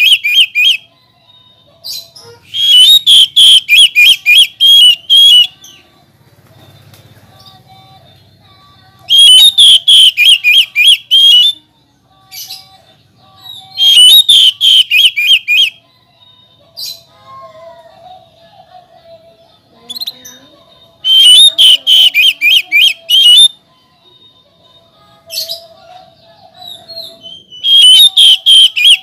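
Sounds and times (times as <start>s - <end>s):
bird calling in sharp notes: 0.0s - 0.9s, 1.8s - 5.9s, 9.1s - 11.6s, 13.4s - 15.8s, 21.0s - 23.6s, 26.6s - 29.0s.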